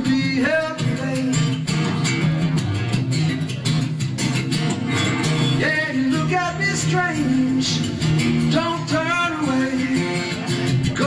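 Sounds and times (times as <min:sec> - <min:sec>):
person singing: 0:00.0 - 0:02.6, 0:05.6 - 0:11.0
acoustic guitar strumming: 0:00.0 - 0:11.0.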